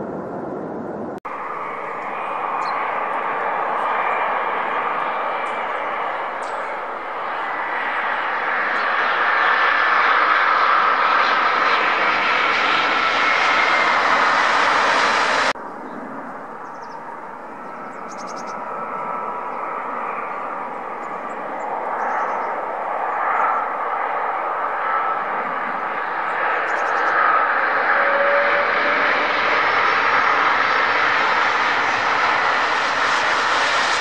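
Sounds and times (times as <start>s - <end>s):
jet engines on approach: 0.0s - 34.0s
jet engines rushing and whining: 0.0s - 34.0s.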